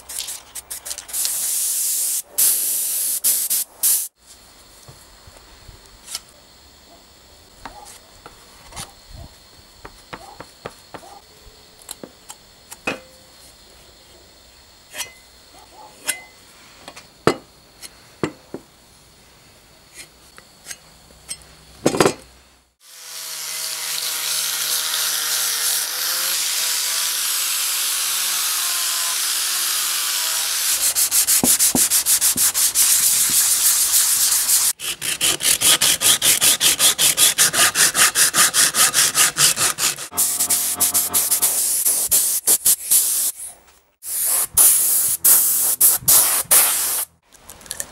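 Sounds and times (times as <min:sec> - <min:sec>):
sandpaper rubbing by hand: 0:00.0 - 0:04.2, 0:22.9 - 0:47.1.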